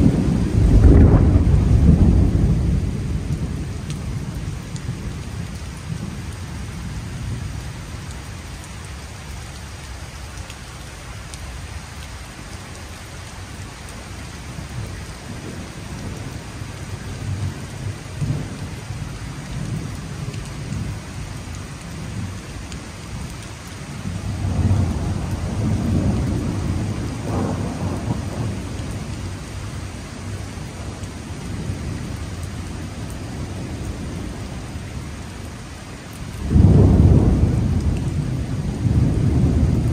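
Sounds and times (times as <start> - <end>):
low rolling thunder: 0.0 - 7.7, 14.7 - 21.0, 23.9 - 35.0, 36.4 - 39.9
rain on wet paving: 0.0 - 39.9.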